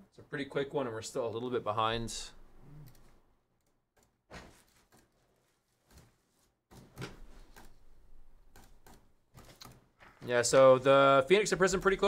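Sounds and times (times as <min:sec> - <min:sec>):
keyboard and mouse clicks: 0:06.7 - 0:07.8, 0:08.5 - 0:09.9.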